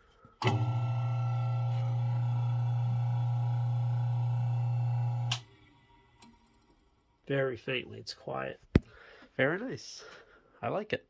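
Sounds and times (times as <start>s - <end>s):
fan motor humming: 0.4s - 6.4s.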